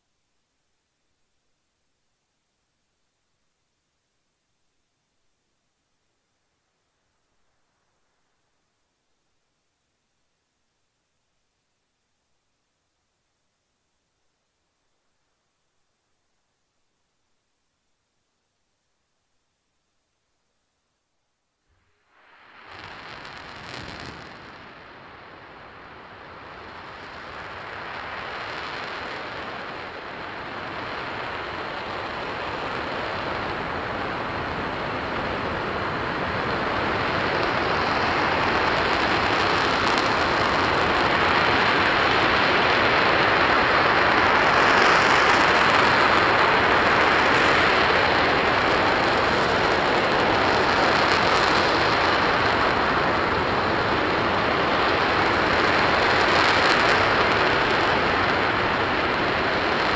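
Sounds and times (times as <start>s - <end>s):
rocket engine roaring: 22.1s - 59.9s.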